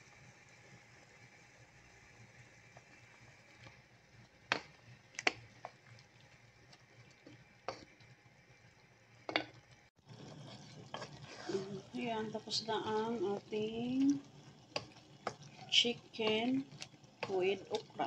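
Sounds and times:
wooden spatula stirring stew: 2.6s - 8.2s, 10.1s - 18.0s.

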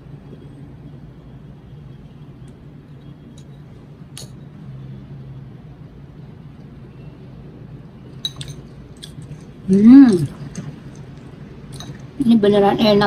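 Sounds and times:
steady low hum: 0.0s - 13.0s
spoon clinking on ceramic plate: 8.2s - 8.7s, 11.7s - 12.0s.

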